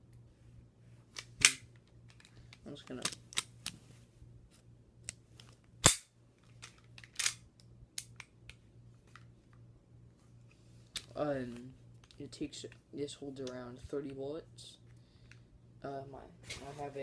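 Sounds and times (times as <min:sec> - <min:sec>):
pistol clicks: 0:05.8 - 0:06.1, 0:07.2 - 0:07.4.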